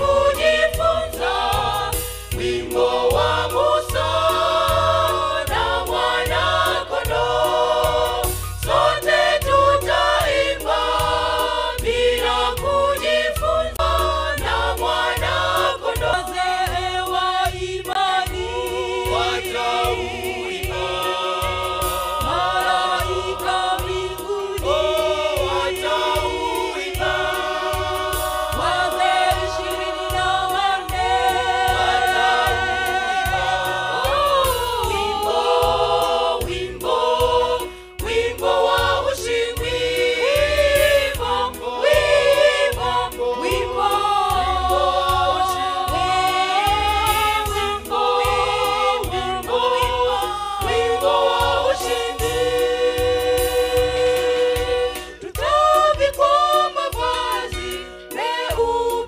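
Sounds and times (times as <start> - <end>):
steady low beat: 0.0 - 57.4
gospel choir singing: 0.0 - 59.0
solo voices singing: 0.0 - 59.0.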